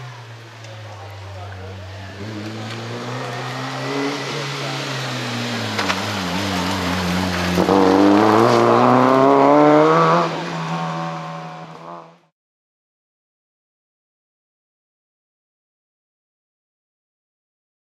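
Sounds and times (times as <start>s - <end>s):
rally car engine revving: 0.0s - 12.3s.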